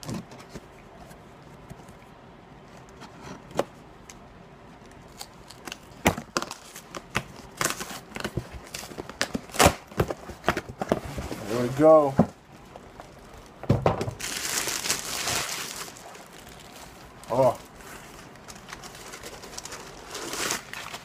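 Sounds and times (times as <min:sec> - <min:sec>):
packing crinkling: 0:04.9 - 0:21.0
cardboard package opened by hand: 0:14.2 - 0:21.0.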